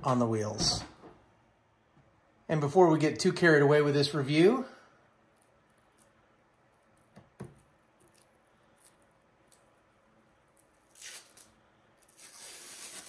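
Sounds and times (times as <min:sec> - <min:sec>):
plastic film peeling: 0:05.4 - 0:13.0.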